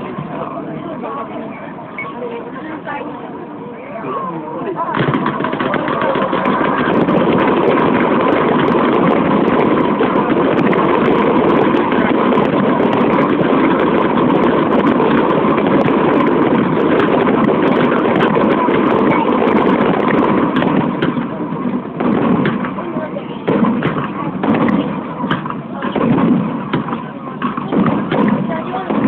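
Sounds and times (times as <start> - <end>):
fireworks bursting and crackling: 4.5 - 29.0.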